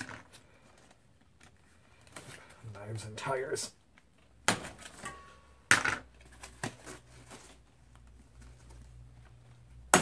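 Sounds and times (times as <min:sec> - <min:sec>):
foam wrapping crackling: 0:06.2 - 0:09.7.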